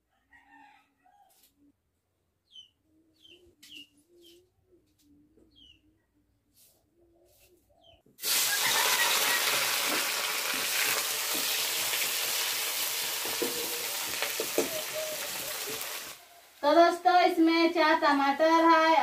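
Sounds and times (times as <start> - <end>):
onions sizzling in hot oil: 8.2 - 16.6
spoon stirring knocks: 13.2 - 14.9
pigeon cooing: 13.3 - 16.5.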